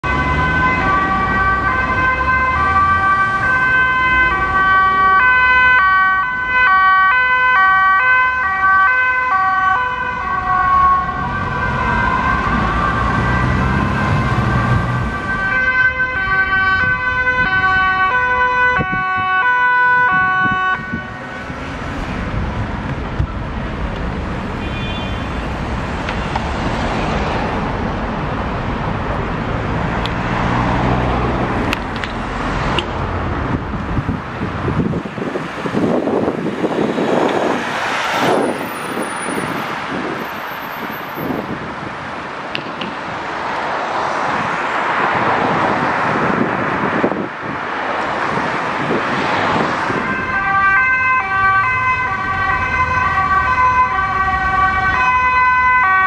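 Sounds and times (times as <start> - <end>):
police sirens two-tone: 0.0 - 21.4, 50.0 - 56.0
road traffic noise: 0.0 - 56.0.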